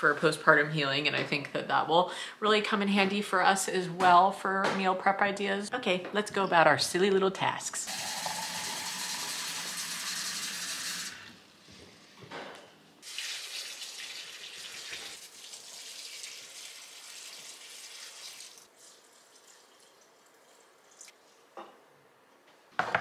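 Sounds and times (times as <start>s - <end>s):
water pouring: 7.9s - 11.3s, 13.0s - 21.2s
faucet running into pitcher: 13.0s - 20.0s.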